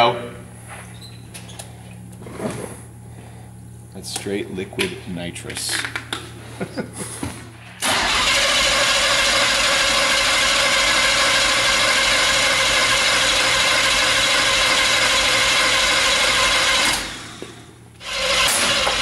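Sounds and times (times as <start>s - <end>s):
engine cranking by starter: 7.8s - 19.0s.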